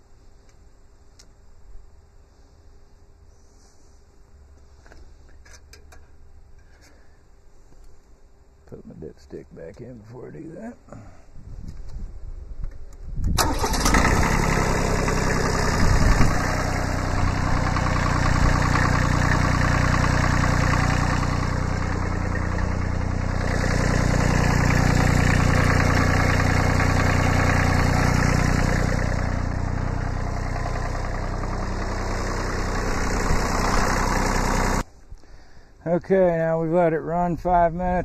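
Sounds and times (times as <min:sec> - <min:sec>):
diesel engine starting and running: 0:13.2 - 0:34.9.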